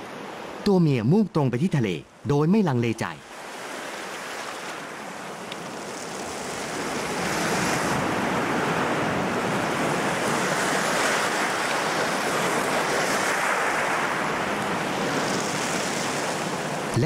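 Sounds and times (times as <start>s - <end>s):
surf breaking on rocky shore: 3.3s - 16.9s.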